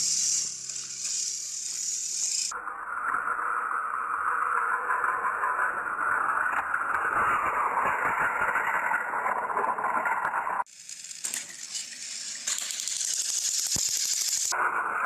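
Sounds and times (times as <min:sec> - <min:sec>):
higher-pitched hissy rattle: 0:00.0 - 0:02.5
toy train whirring and rattling: 0:00.0 - 0:15.0.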